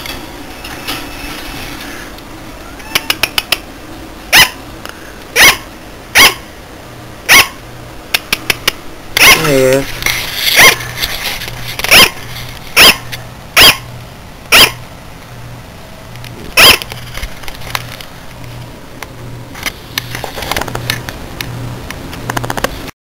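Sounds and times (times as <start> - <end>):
sugar glider yapping: 4.3 - 4.6, 5.4 - 6.5, 7.3 - 7.6, 9.2 - 9.7, 12.8 - 13.9, 14.5 - 14.8, 16.6 - 16.8.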